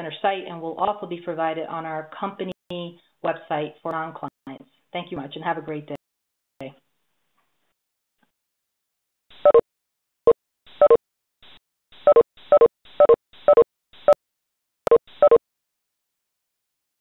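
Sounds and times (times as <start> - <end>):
short electronic beep tones: 9.4 - 9.6, 10.8 - 11.0, 12.1 - 14.2, 14.9 - 15.4.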